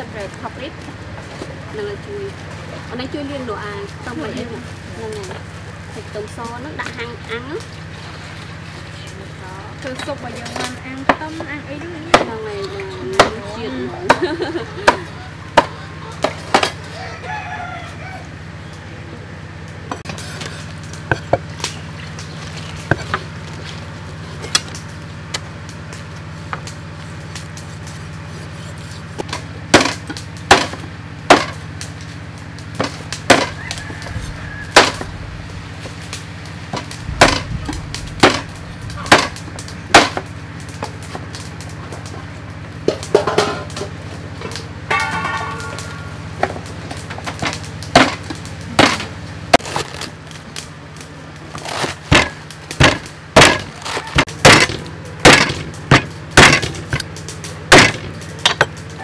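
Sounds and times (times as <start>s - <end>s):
low hum: 18.2s - 42.8s
cleaver chopping on wooden block: 32.8s - 33.6s, 39.1s - 39.3s, 52.1s - 54.7s, 55.3s - 57.1s, 57.7s - 58.7s.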